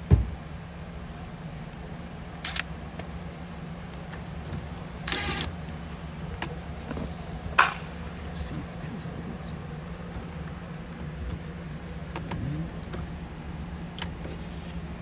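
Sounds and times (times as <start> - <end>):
low steady hum: 0.0 - 15.0
thump: 0.1 - 0.4.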